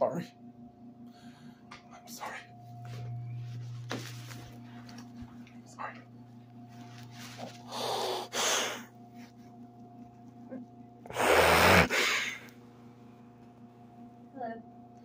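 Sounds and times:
loud sniffling breaths: 0:07.6 - 0:08.9, 0:11.1 - 0:12.5.

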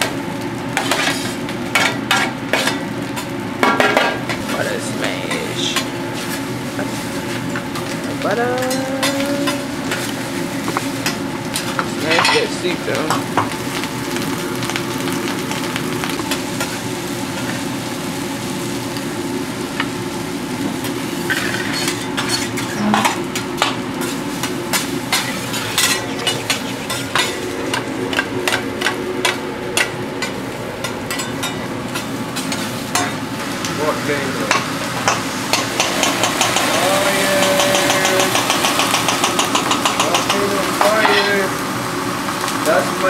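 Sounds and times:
food sizzling on a griddle: 0:00.0 - 0:43.0.

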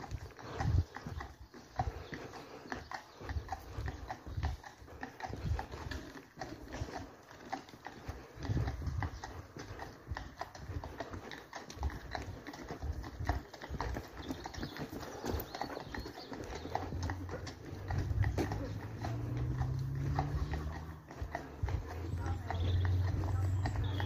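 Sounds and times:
horse hooves on tarmac: 0:00.0 - 0:24.0
low uneven rumbles: 0:16.6 - 0:24.0.

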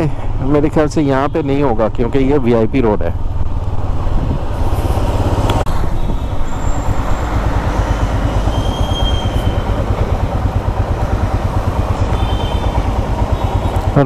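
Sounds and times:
road and wind noise: 0:00.0 - 0:14.0
motorcycle engine ticking over: 0:05.4 - 0:14.0.

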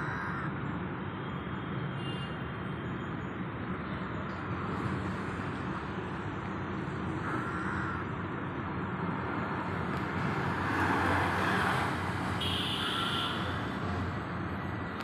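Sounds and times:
road traffic: 0:00.0 - 0:15.0
vehicle passing: 0:08.8 - 0:12.4.

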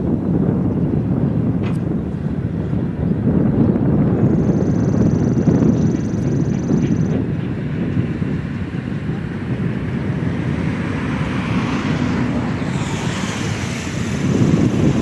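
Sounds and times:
wind buffeting microphone: 0:00.0 - 0:15.0
distant steam locomotive working: 0:05.7 - 0:15.0
hissing rush: 0:10.0 - 0:15.0.

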